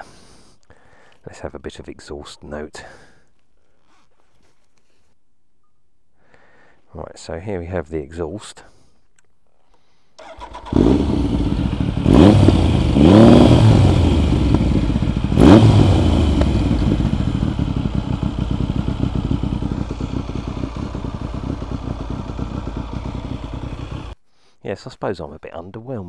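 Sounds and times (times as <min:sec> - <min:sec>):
motorcycle engine revving: 0:10.2 - 0:24.2.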